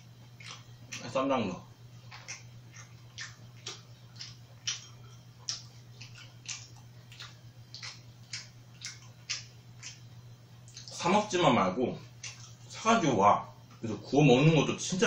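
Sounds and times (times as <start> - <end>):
mouth chewing food: 0.0 - 11.2, 12.0 - 12.8
steady low hum: 0.0 - 15.0.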